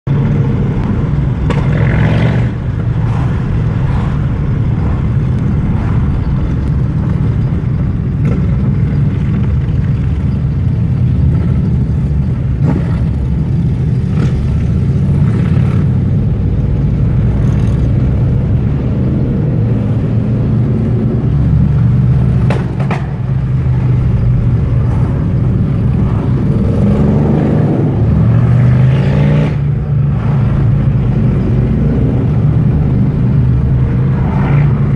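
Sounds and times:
motorcycle engines rumbling: 0:00.1 - 0:34.9.

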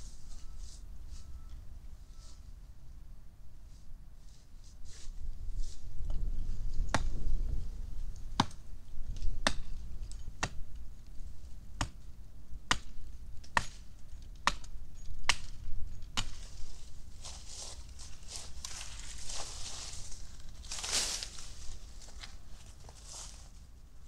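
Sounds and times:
hatchet chopping branch: 0:08.4 - 0:08.6, 0:09.4 - 0:09.7, 0:10.4 - 0:10.6, 0:12.7 - 0:13.8, 0:14.4 - 0:14.7, 0:15.3 - 0:16.4.

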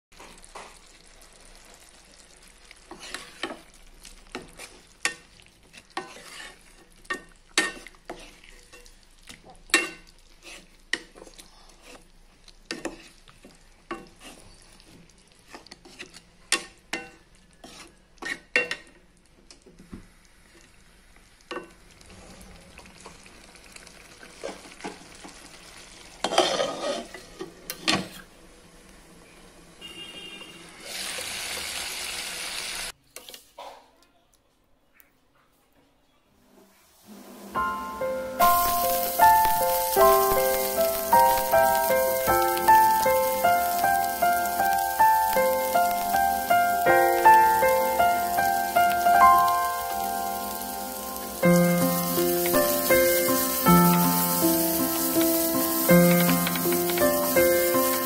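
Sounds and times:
curry sizzling in a pan: 0:00.2 - 0:33.3, 0:36.7 - 0:58.0
plastic spatula scraping a pan: 0:05.7 - 0:06.7, 0:10.4 - 0:10.8, 0:15.5 - 0:16.3, 0:17.6 - 0:18.4, 0:26.2 - 0:28.2.

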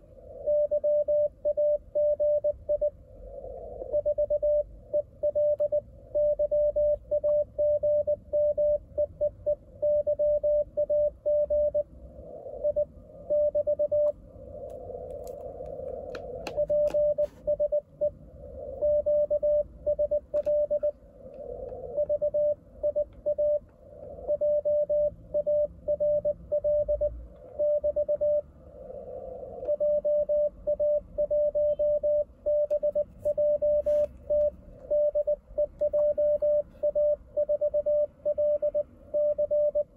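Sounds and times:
morse code beeps: 0:00.4 - 0:02.9, 0:03.9 - 0:11.8, 0:12.6 - 0:14.1, 0:16.4 - 0:18.2, 0:18.8 - 0:20.9, 0:22.0 - 0:23.6, 0:24.3 - 0:28.4, 0:29.6 - 0:39.9
radio band hiss: 0:15.2 - 0:17.5, 0:33.2 - 0:34.3.

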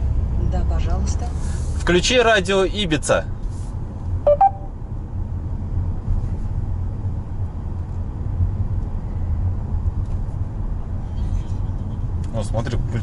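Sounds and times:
road and engine rumble in car: 0:00.0 - 0:13.0.

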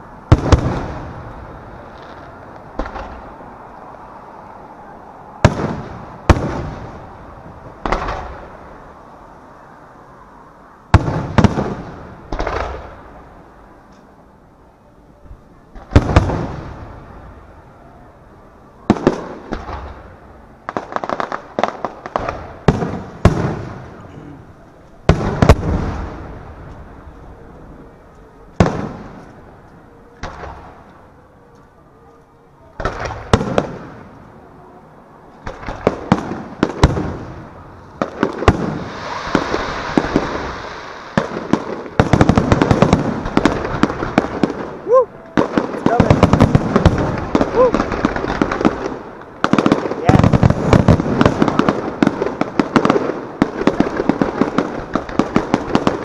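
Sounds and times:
fireworks bursting with echo: 0:00.0 - 0:03.4, 0:05.4 - 0:08.8, 0:10.9 - 0:13.2, 0:15.7 - 0:17.2, 0:18.9 - 0:24.2, 0:25.0 - 0:27.1, 0:28.5 - 0:29.6, 0:30.2 - 0:31.1, 0:32.8 - 0:34.4, 0:35.3 - 0:56.0.

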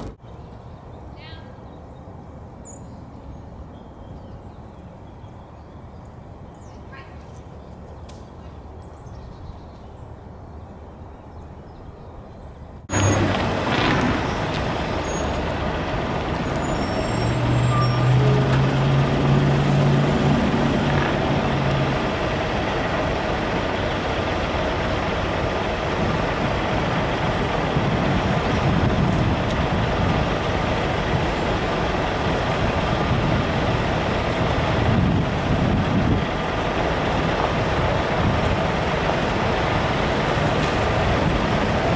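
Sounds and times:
road traffic: 0:00.0 - 0:41.9
deep engine drone: 0:12.9 - 0:41.9.

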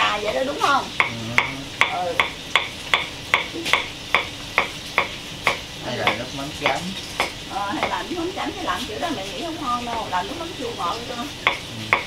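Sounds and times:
knife chopping on wooden board: 0:01.0 - 0:08.0, 0:11.4 - 0:12.0.

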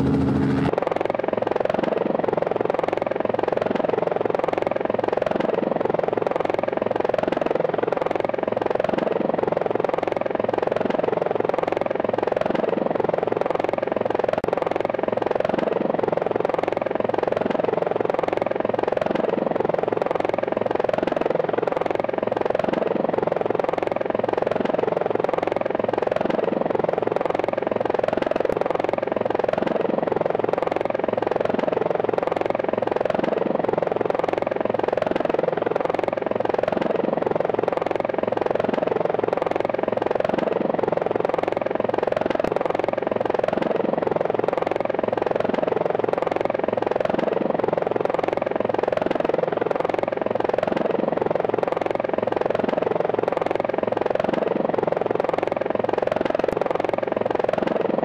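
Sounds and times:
drone propellers whirring: 0:00.0 - 0:00.8.

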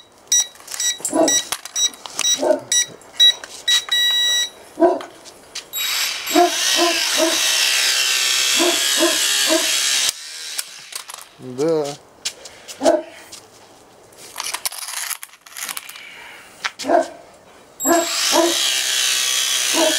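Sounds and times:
short electronic beeps: 0:00.0 - 0:04.6
dog barking: 0:01.1 - 0:01.5, 0:02.4 - 0:02.7, 0:04.8 - 0:05.1, 0:06.3 - 0:07.4, 0:08.6 - 0:09.7, 0:12.8 - 0:13.2, 0:16.8 - 0:17.2, 0:17.8 - 0:18.6
toy quadcopter motors whining: 0:05.8 - 0:11.3, 0:17.8 - 0:19.9.

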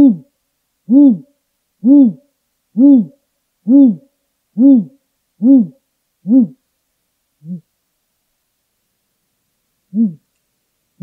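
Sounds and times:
owl deep hoots: 0:00.0 - 0:00.3, 0:00.9 - 0:06.6, 0:07.4 - 0:07.7, 0:09.9 - 0:10.3.

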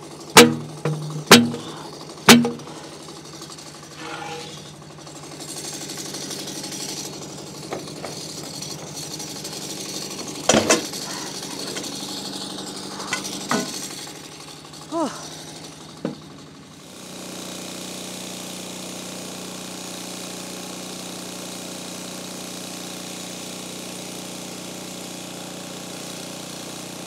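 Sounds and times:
engine idling: 0:00.0 - 0:17.8
ringing metal knocks: 0:00.4 - 0:02.9, 0:04.0 - 0:04.7
log clanking on metal: 0:00.4 - 0:03.0, 0:03.9 - 0:04.7, 0:12.9 - 0:13.8.

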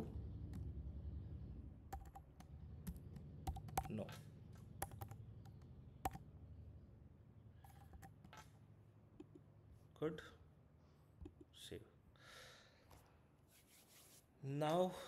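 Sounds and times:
faint low hum: 0:00.0 - 0:15.0
keyboard key clicks: 0:01.9 - 0:04.2, 0:04.8 - 0:06.2.

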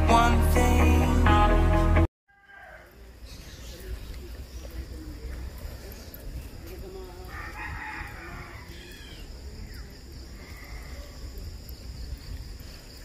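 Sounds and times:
bicycle rolling on concrete: 0:03.5 - 0:09.2
wind buffeting microphone: 0:09.5 - 0:13.0.

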